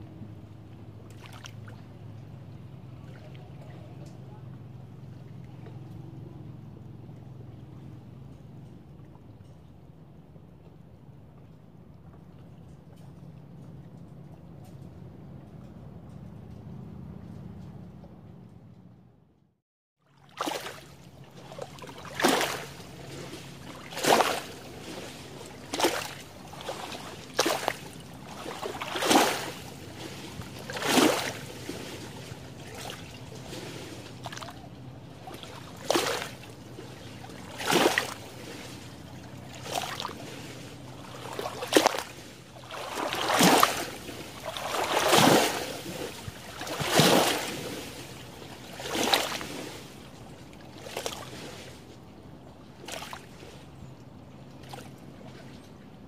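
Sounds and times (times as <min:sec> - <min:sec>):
wash of moving water: 0:00.0 - 0:15.6, 0:20.0 - 0:56.0
lake waves lapping on shore: 0:00.6 - 0:06.6, 0:20.0 - 0:56.0.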